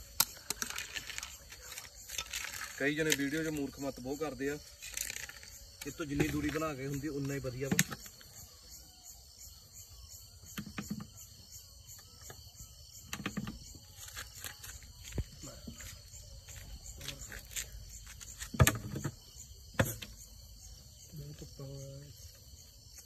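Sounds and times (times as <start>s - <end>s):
crickets chirping: 0.0s - 23.0s
handling knocks and scrapes: 4.8s - 8.4s, 13.1s - 20.3s.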